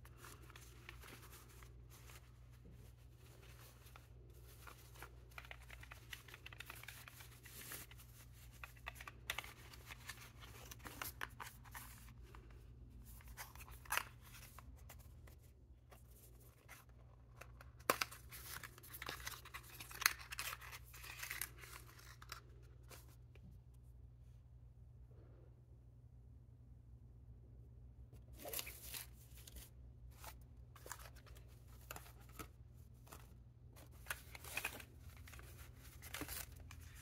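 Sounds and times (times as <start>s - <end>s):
rustling of packaging: 0.0s - 23.2s, 28.3s - 37.0s.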